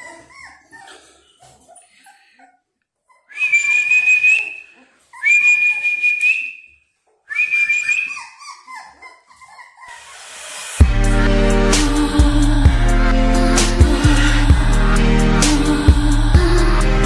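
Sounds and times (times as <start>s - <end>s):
puppies whimpering: 0.0s - 6.0s, 7.8s - 10.3s
puppies whining: 0.0s - 6.2s, 7.5s - 10.6s.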